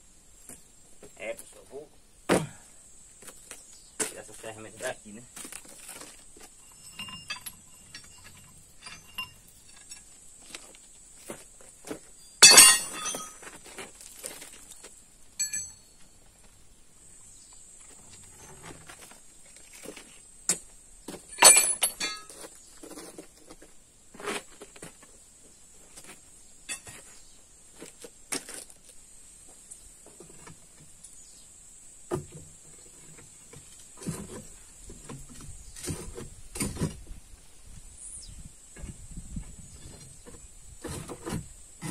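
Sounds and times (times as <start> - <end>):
steel tools working stone: 6.5 - 10.2, 12.4 - 13.4, 15.4 - 15.9, 21.4 - 22.4
sharp ringing strikes: 12.4 - 13.4.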